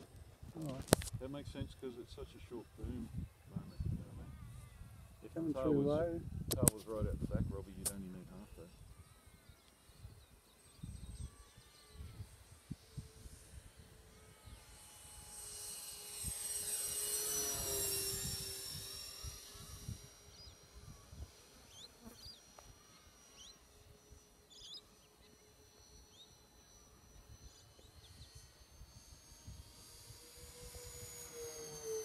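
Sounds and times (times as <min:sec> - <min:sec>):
model plane motors whining: 0:00.0 - 0:32.0.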